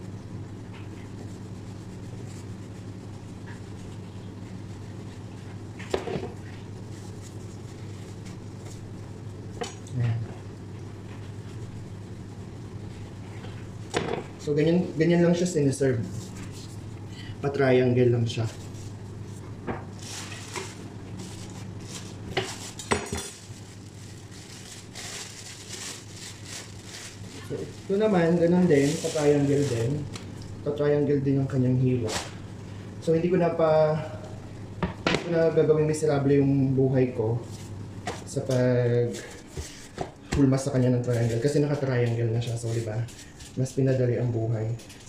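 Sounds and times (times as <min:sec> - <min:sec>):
steady low hum: 0:00.0 - 0:45.0
plastic bag rustling: 0:18.2 - 0:30.2.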